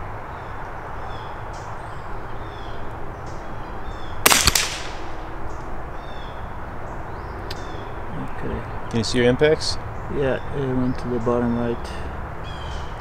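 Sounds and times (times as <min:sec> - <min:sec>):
rifle shot: 0:04.2 - 0:05.3.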